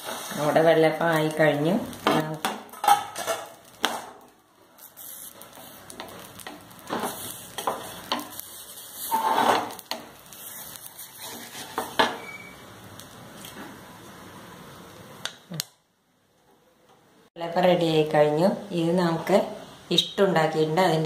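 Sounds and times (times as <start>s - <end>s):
wooden spatula scraping pan: 0.0s - 0.7s, 5.6s - 12.4s
low sizzle: 0.0s - 21.0s.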